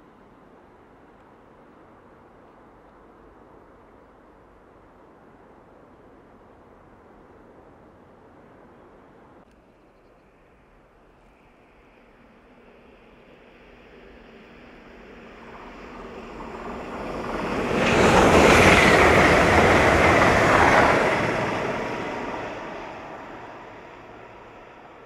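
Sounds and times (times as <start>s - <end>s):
electric train passing at speed: 11.4s - 25.0s.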